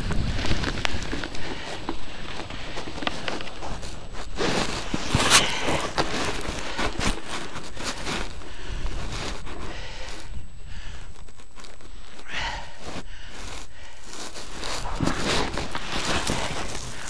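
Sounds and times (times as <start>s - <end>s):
wind rumble on microphone: 0.0s - 5.3s
skis sliding through snow: 0.0s - 10.3s, 12.8s - 17.0s.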